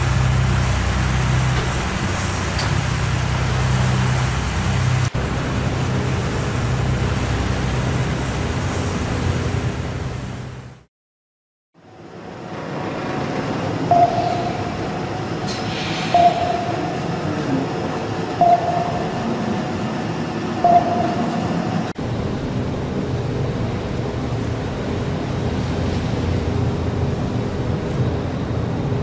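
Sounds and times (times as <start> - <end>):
low rumble: 0.0 - 10.8
radar beeps: 13.9 - 14.9, 16.1 - 17.0, 18.4 - 19.3, 20.6 - 21.6.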